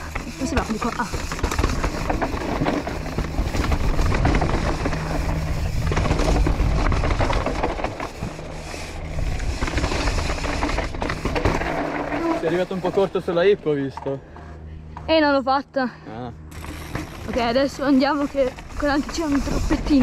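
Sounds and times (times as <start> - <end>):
tyres crunching over loose rocks: 0.0 - 12.6
bike rattling: 0.0 - 15.4, 16.4 - 20.0
wind rumble on microphone: 1.4 - 7.8.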